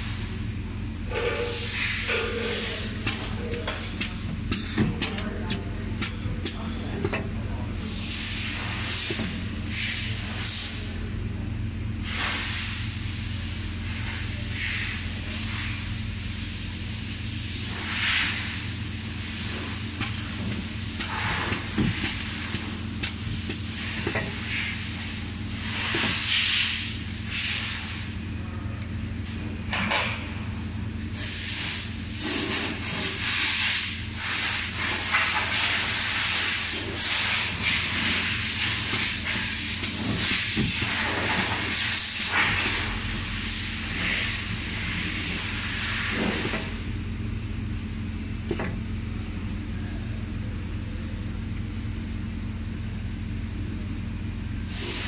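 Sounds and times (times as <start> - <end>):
machine hum and whine: 0.0 - 55.0
compressed air hisses: 1.5 - 4.3, 7.8 - 10.9, 31.2 - 47.0, 54.6 - 55.0.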